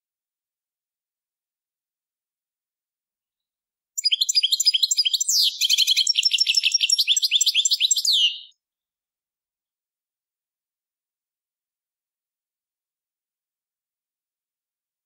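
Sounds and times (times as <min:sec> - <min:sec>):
goldfinch song: 0:04.0 - 0:08.6.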